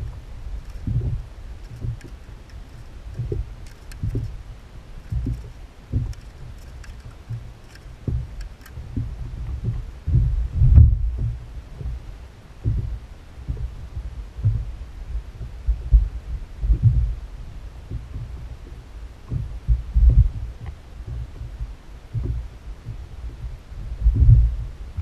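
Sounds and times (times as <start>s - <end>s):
faint ticks: 0.0s - 12.0s, 17.9s - 23.5s
kayak thumping on choppy sea: 0.0s - 25.0s.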